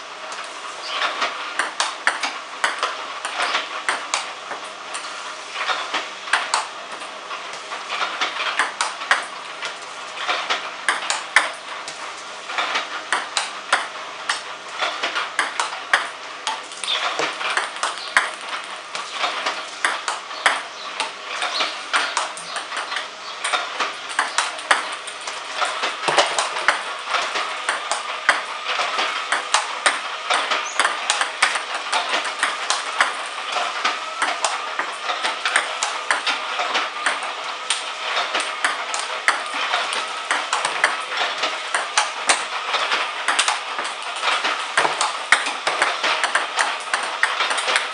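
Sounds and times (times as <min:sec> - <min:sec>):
table tennis ball clicks: 0:15.0 - 0:37.8, 0:38.4 - 0:41.0, 0:41.7 - 0:47.9.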